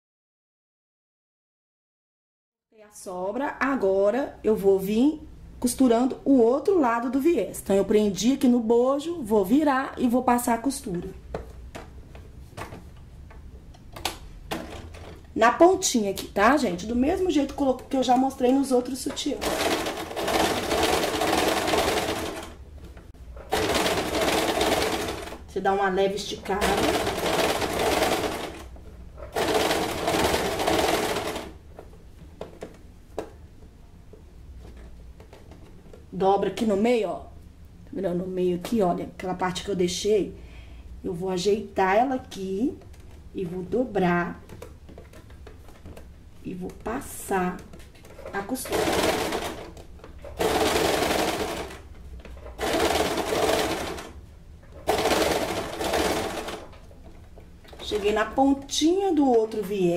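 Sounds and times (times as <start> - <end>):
sewing machine stitching: 19.0 - 22.6, 23.4 - 25.5, 26.5 - 31.6, 48.0 - 56.9.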